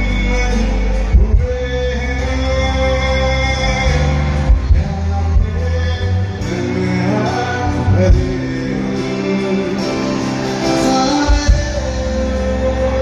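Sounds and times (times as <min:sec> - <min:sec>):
live rock band playing: 0:00.0 - 0:13.0
man singing: 0:00.0 - 0:13.0.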